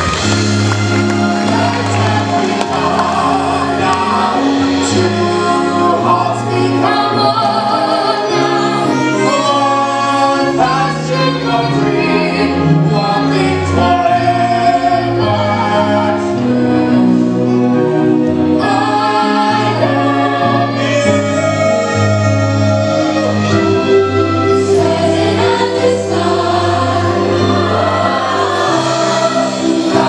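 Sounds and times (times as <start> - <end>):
chorus singing: 0.0 - 30.0
pit band playing: 0.0 - 30.0.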